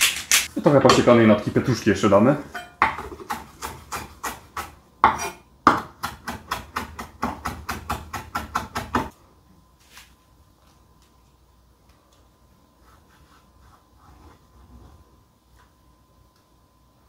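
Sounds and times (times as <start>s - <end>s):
knife chopping on wooden board: 2.8s - 9.1s.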